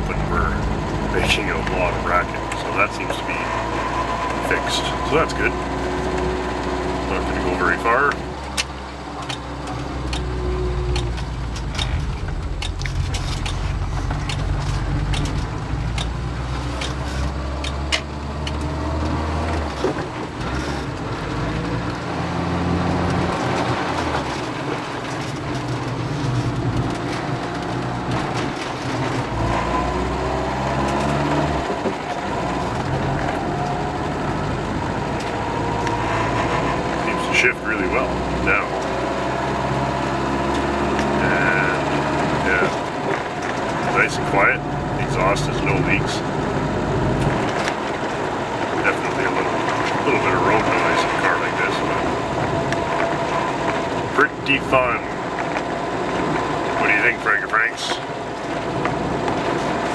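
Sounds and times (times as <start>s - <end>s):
car engine from inside cabin: 0.0s - 59.9s
road noise: 0.0s - 59.9s
light ticks and rattles: 8.1s - 22.1s.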